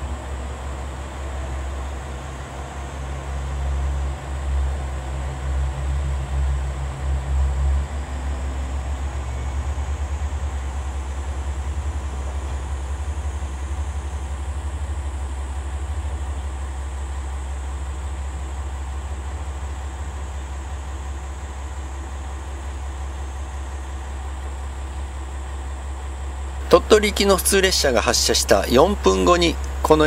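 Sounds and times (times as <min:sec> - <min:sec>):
diesel railcar engine idling: 0:00.0 - 0:30.0
diesel railcar engine pulling out: 0:00.0 - 0:30.0.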